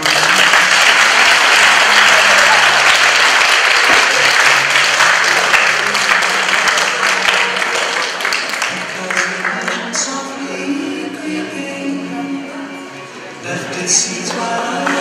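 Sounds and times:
audience applauding: 0.0 - 10.2, 14.3 - 15.0.

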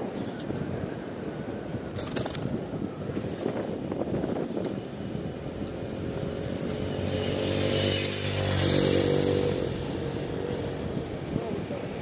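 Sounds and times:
vehicle engine passing by: 6.0 - 10.9.

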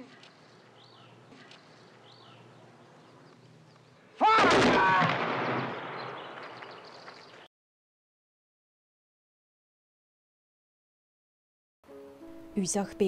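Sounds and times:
rifle volley with echo: 4.3 - 7.2.

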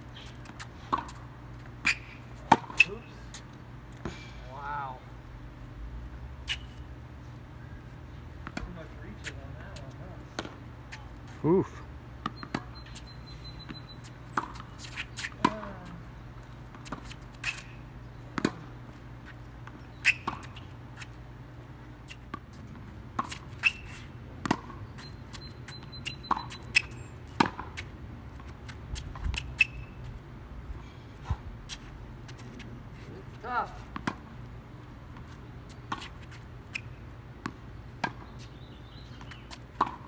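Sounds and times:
tennis ball bouncing: 0.3 - 3.0, 8.4 - 10.6, 12.2 - 15.9, 16.7 - 20.7, 22.1 - 30.0, 33.8 - 34.5, 35.1 - 40.0
racket hitting tennis ball: 0.4 - 1.2, 1.8 - 3.0, 14.4 - 15.8, 18.4 - 18.7, 22.1 - 24.9, 26.2 - 29.8, 33.9 - 34.3, 39.2 - 40.0.

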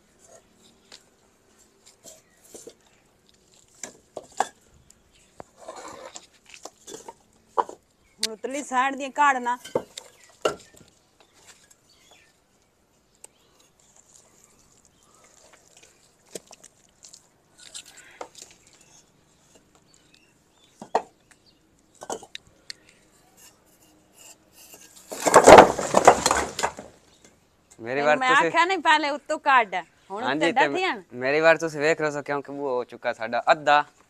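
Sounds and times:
brick scraping on brick: 5.5 - 7.8, 23.3 - 26.7.

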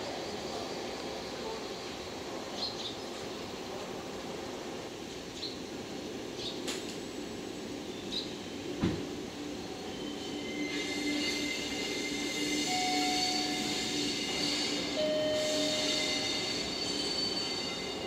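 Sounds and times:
electric locomotive passing: 0.0 - 18.0
train wheels squealing: 9.6 - 18.0.

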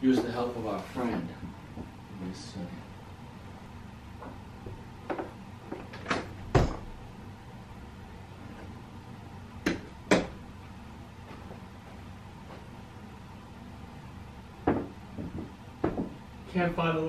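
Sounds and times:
cupboard doors banging shut: 5.9 - 7.0.

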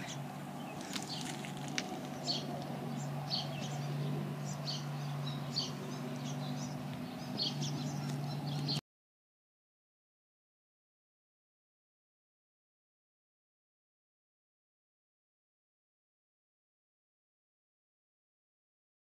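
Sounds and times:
small birds chirping: 0.0 - 8.8
steady low hum: 0.0 - 8.8.

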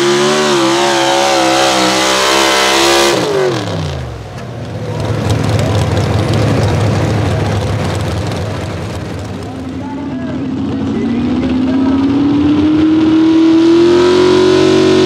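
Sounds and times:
truck engine at full power: 0.0 - 15.0.

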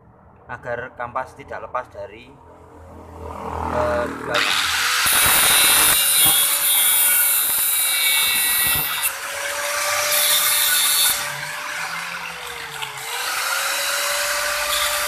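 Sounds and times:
bench grinder motor hum: 4.3 - 15.0
grinding hiss on steel: 4.9 - 9.0.

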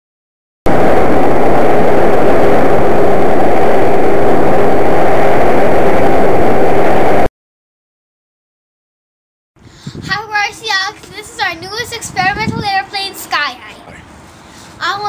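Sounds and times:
rush of air noise: 0.7 - 7.3, 9.6 - 13.4, 14.0 - 15.0.

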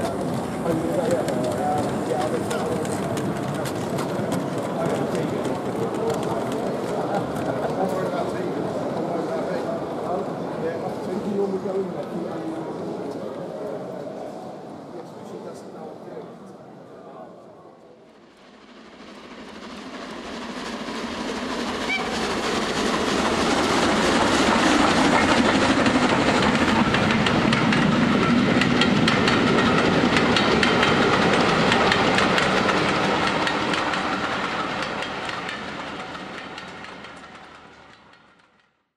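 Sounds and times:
wheels clacking over rail joints: 0.0 - 9.2, 20.2 - 38.7
train passing: 0.0 - 38.8.

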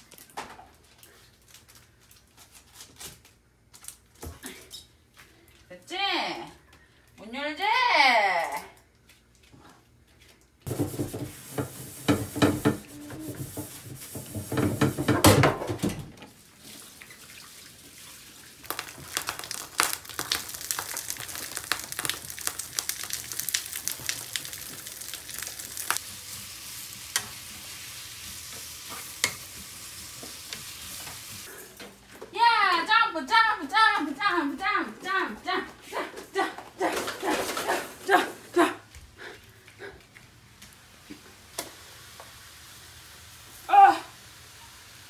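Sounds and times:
wooden spatula scraping a pan: 10.7 - 15.3
food sizzling in a pan: 10.7 - 15.4, 18.1 - 31.6, 41.1 - 45.0.

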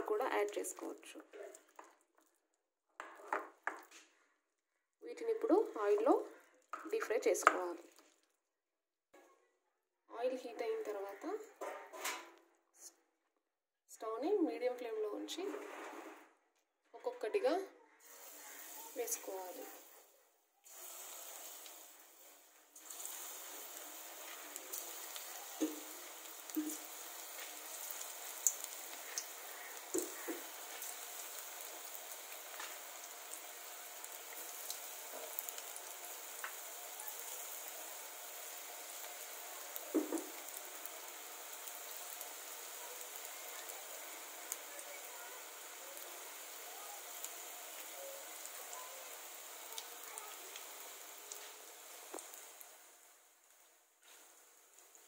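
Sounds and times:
food deep-frying in hot oil: 0.0 - 4.0, 5.1 - 8.4, 10.2 - 11.4, 17.2 - 55.0
oil popping and crackling: 0.0 - 4.2, 5.4 - 8.5, 20.6 - 55.0.

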